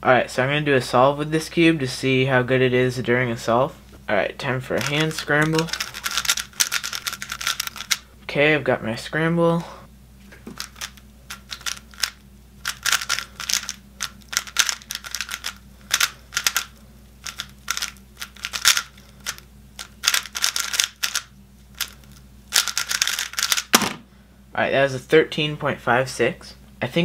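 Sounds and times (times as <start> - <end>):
puzzle cube plastic clicking: 4.8 - 8.0, 10.6 - 16.7, 17.3 - 23.8.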